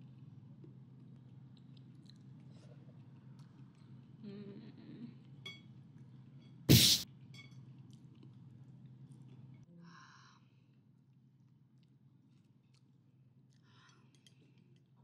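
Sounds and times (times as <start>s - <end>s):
chopsticks clinking on plate: 5.4s - 5.8s, 7.3s - 7.8s.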